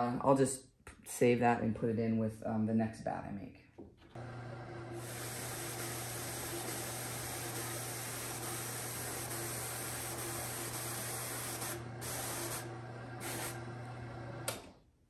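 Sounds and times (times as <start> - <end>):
electric motor humming: 4.2 - 14.6.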